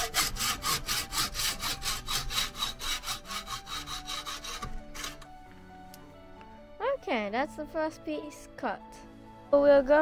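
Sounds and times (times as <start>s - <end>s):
hacksaw cutting metal tube: 0.0s - 5.4s.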